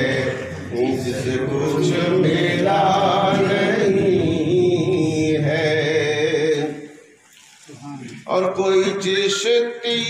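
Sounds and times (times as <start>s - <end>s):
man chanting devotional song: 8.0s - 10.0s.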